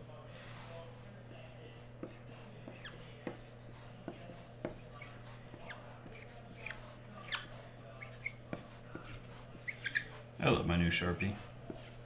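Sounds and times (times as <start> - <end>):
marker squeaks: 1.8 - 10.3.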